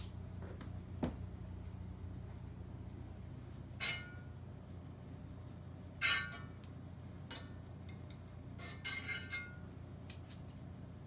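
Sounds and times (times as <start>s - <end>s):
metal spoon scraping a skillet: 6.0s - 6.5s, 8.6s - 10.7s.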